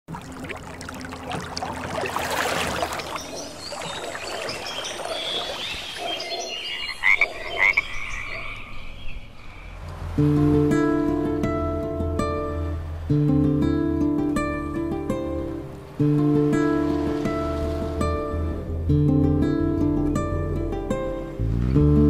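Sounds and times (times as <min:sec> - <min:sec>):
frogs croaking: 0:00.2 - 0:13.1.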